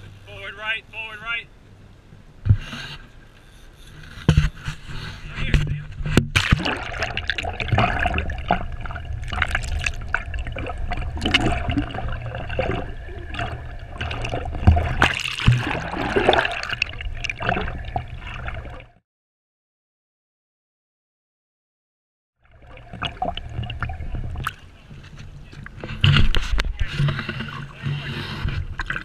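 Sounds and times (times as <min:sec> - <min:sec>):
steady low hum: 0:00.0 - 0:18.9
water sloshing and bubbling: 0:00.0 - 0:19.0, 0:22.4 - 0:29.0.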